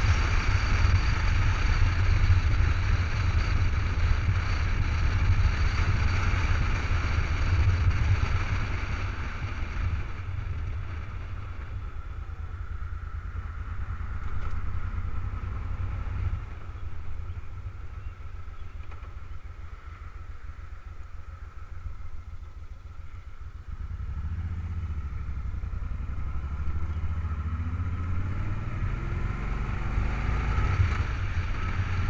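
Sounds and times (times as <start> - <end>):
wind noise on microphone: 0.0 - 22.3
motorcycle engine running: 0.0 - 32.0.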